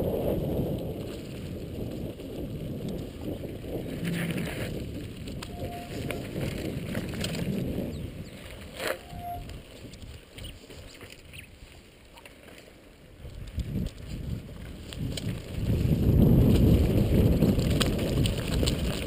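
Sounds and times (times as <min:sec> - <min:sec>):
wind buffeting microphone: 0:00.0 - 0:11.7, 0:13.1 - 0:19.0
tyres rumbling over gravel: 0:00.0 - 0:19.0
bike rattling clicks: 0:04.0 - 0:11.4, 0:12.2 - 0:19.0.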